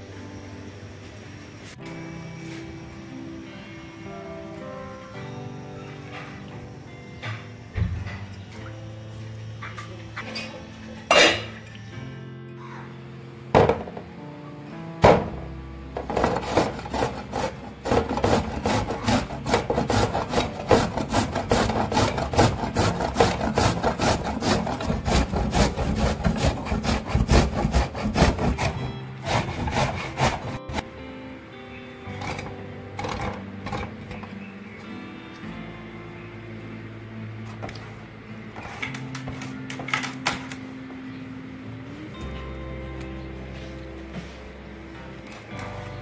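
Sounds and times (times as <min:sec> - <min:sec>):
soft background music: 0:00.0 - 0:46.0
sharp knocks: 0:15.0 - 0:15.4
carrot grating on tin grater: 0:16.0 - 0:30.8.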